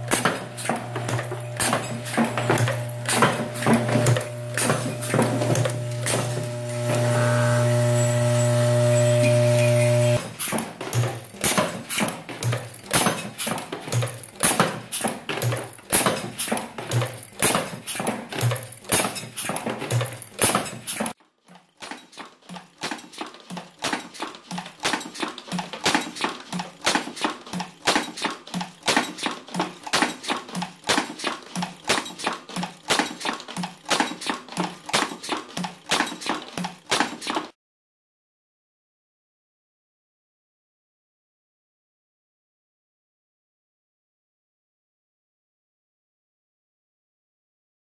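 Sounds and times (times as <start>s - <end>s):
loading machine clacking: 0.0s - 6.9s, 9.6s - 37.5s.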